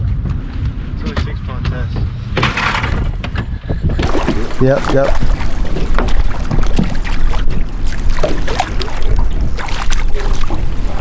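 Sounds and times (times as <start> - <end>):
wind buffeting microphone: 0.0 - 11.0
short splashes: 4.0 - 11.0
water slapping against boat: 4.0 - 11.0.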